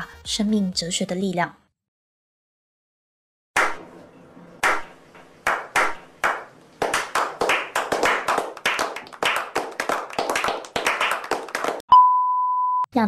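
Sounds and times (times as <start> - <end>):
hand claps with echo: 3.6 - 3.8, 4.6 - 11.8
people applauding: 5.4 - 11.8.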